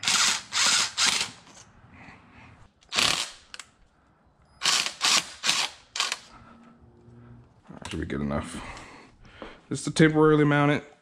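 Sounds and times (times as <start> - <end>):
cordless driver whirring: 0.0 - 1.6, 4.6 - 6.3.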